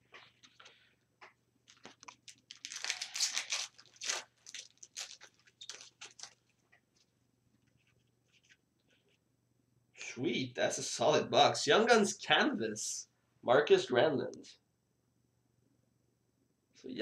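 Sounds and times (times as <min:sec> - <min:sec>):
wrapper being torn and crinkled: 0:01.6 - 0:06.6.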